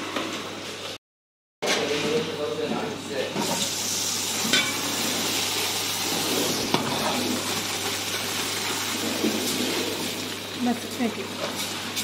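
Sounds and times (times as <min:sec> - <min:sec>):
fat sizzling in a pot: 0:03.4 - 0:12.0.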